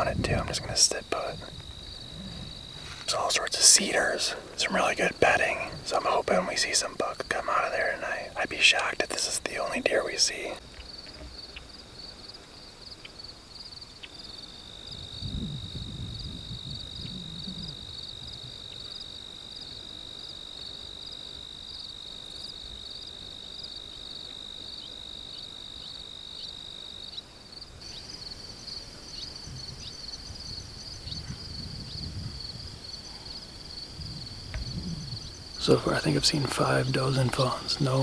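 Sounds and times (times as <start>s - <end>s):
low wind rumble on microphone: 0.0s - 3.5s, 14.8s - 18.9s, 28.7s - 38.0s
fast rhythmic insect chirping: 0.0s - 38.0s
steady high insect trill: 0.0s - 38.0s.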